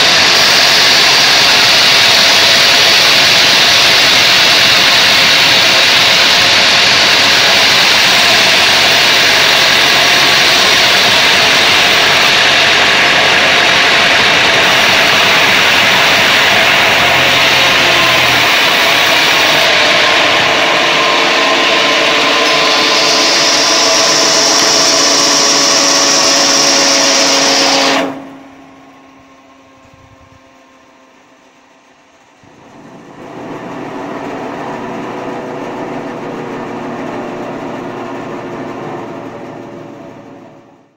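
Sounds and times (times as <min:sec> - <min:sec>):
band sawmill blade cutting log: 0:00.0 - 0:28.4
engine and belt running: 0:00.0 - 0:40.9
engine running: 0:00.0 - 0:40.9.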